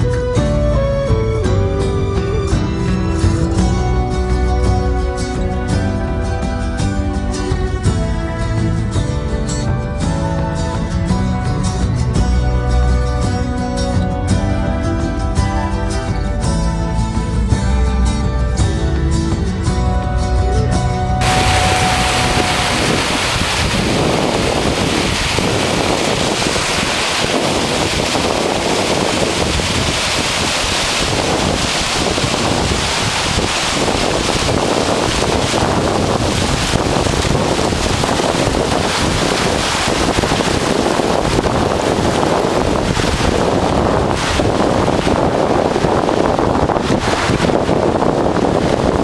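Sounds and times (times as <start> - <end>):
wind on microphone: 21.0 - 49.0
stream rushing over rocks: 21.2 - 49.0.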